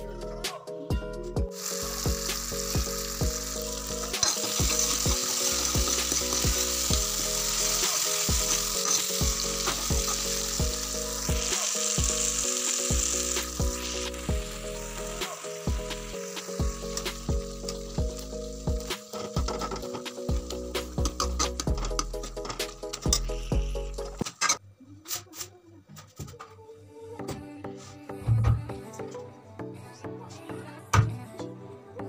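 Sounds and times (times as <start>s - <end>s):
food sizzling in hot oil: 1.5s - 24.2s
metal ladle stirring: 8.5s - 9.8s.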